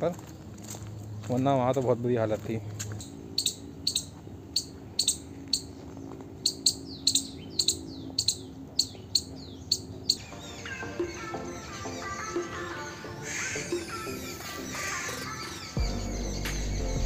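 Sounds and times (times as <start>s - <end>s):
small animal chirping: 2.8s - 17.0s
faint low drone: 15.8s - 17.0s.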